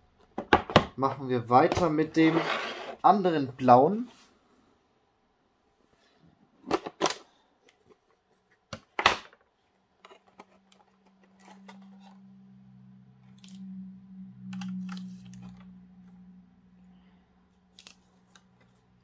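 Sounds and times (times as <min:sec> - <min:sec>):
plastic box clicks and knocks: 0:00.3 - 0:01.0
low steady hum: 0:10.0 - 0:19.0.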